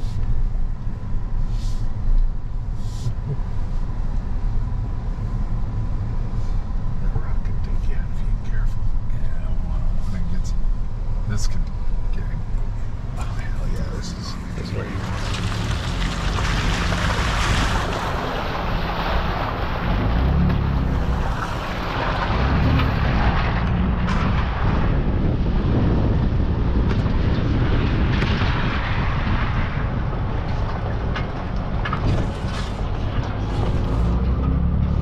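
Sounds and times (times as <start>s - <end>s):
pickup truck engine rumble: 0.0s - 35.0s
tyres through muddy puddle: 13.2s - 26.0s
wind buffeting microphone: 13.9s - 34.2s.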